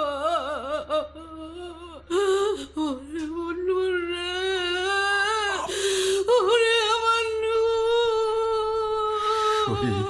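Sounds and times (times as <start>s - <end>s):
person humming: 9.6s - 10.0s.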